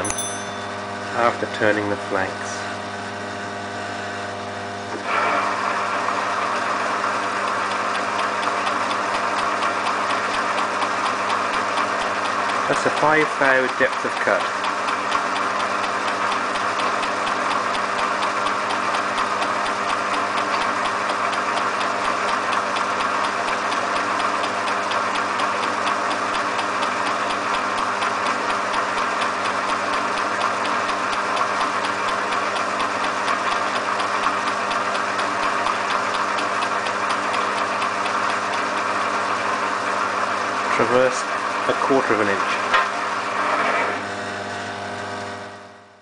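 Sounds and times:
lathe machine hum: 0.0 - 46.0.

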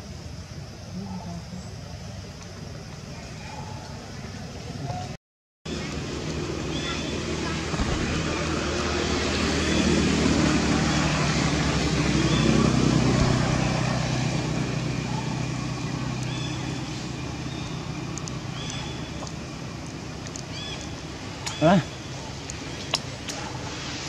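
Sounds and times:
vehicle engine passing: 5.7 - 24.0.

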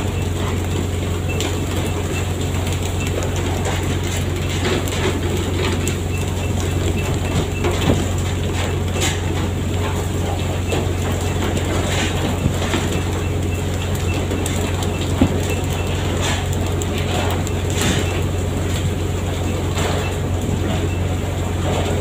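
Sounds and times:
knocks and clatter: 2.8 - 13.2, 13.8 - 18.2.

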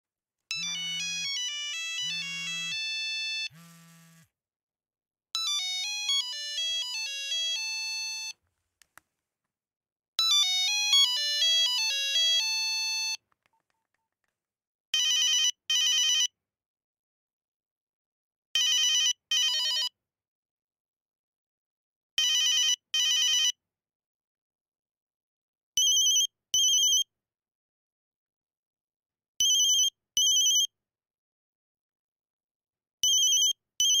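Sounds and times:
high pulsed phone rings: 0.5 - 3.7
monophonic ringtone melodies: 0.6 - 3.5, 5.4 - 8.3.

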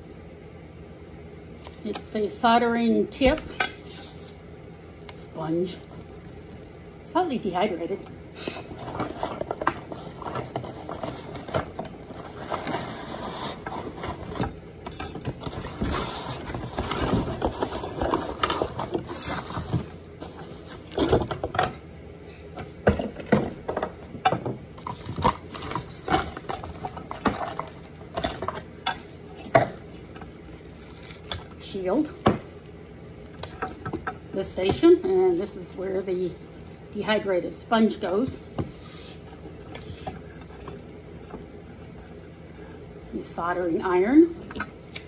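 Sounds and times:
packaging rustling and scraping: 3.8 - 4.6, 8.5 - 21.8, 22.6 - 41.4
knocks and clicks of packaging: 8.7 - 12.8, 13.6 - 21.8, 22.6 - 34.9.

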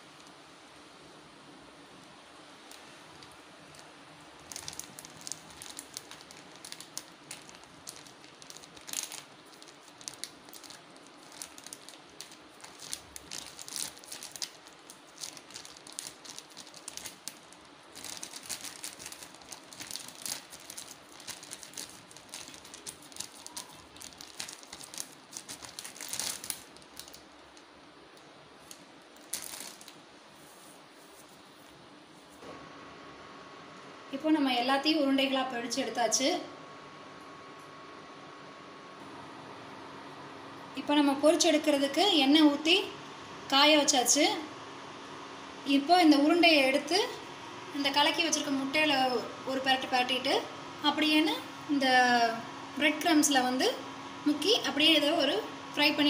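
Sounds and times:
plastic bag crinkling: 2.7 - 30.1.

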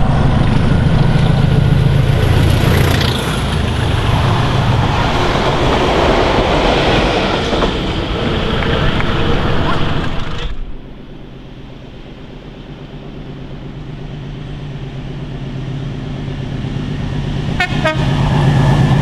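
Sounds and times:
train wheels clattering over rails: 0.0 - 10.8
locomotive engine drone: 0.0 - 19.0.

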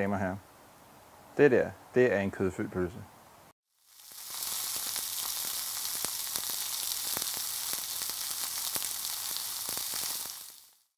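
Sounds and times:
sausage sizzling on a grill: 3.7 - 10.9
fat crackling pops: 4.0 - 10.9.

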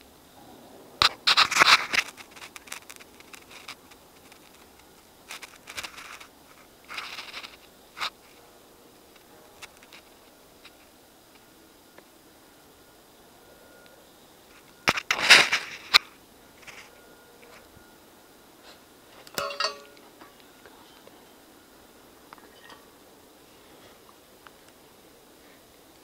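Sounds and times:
twigs snapping: 1.0 - 8.2.

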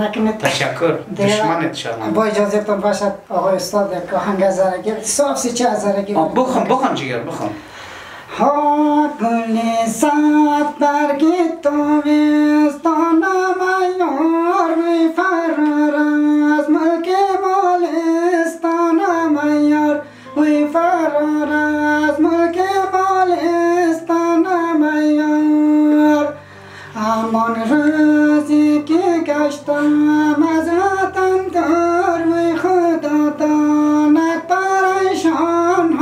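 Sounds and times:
person singing folk song: 7.5 - 36.0.

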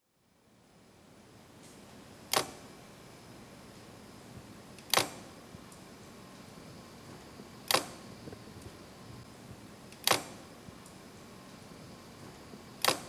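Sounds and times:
faint steady hiss: 0.0 - 13.0
sharp clicks: 2.3 - 2.7, 4.8 - 5.8, 7.6 - 8.8, 9.9 - 11.0, 12.8 - 13.0.

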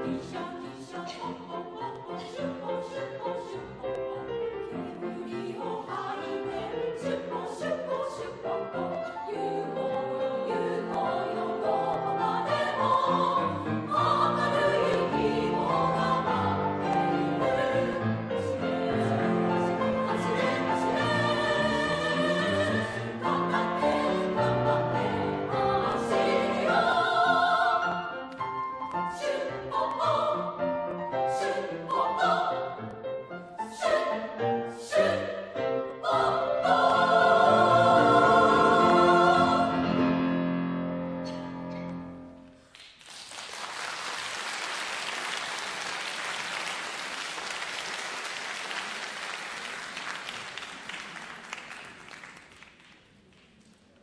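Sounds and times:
women's choir singing: 0.0 - 40.4
piano: 0.0 - 43.0
audience applause: 43.0 - 53.0.

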